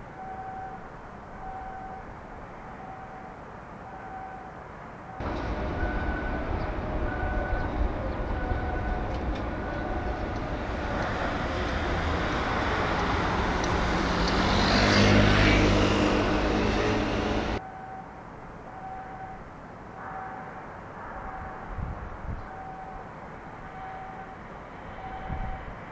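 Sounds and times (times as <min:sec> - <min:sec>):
traffic noise: 0:00.0 - 0:25.9
vehicle passing close by: 0:05.2 - 0:17.6.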